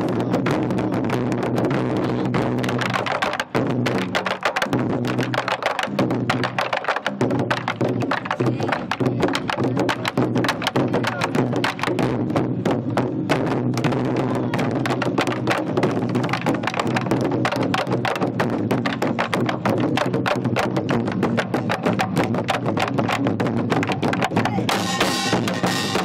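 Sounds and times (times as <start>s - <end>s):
barrel drums beaten fast: 0.0s - 26.0s.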